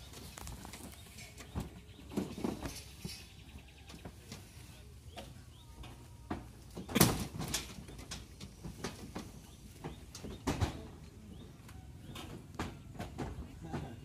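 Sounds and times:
knocks and thumps of cases: 6.2 - 14.0.

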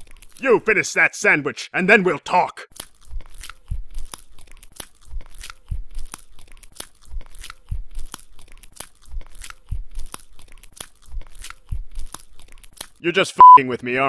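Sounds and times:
wet chewing and crunching: 0.0 - 0.5, 2.7 - 13.2.

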